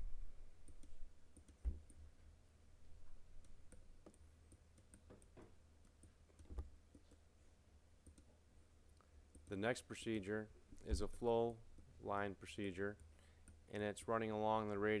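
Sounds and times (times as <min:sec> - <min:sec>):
computer mouse clicks: 0:00.6 - 0:02.0, 0:03.4 - 0:07.2, 0:08.0 - 0:08.3.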